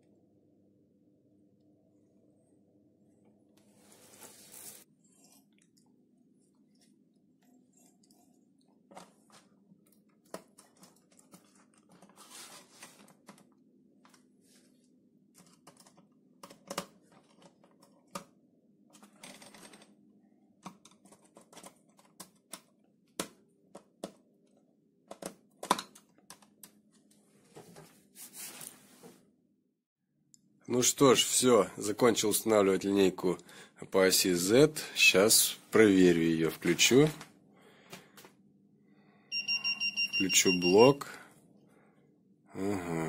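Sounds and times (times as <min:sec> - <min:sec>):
low steady hum: 0:00.0 - 0:28.0
rustling of handled cover: 0:10.3 - 0:13.5.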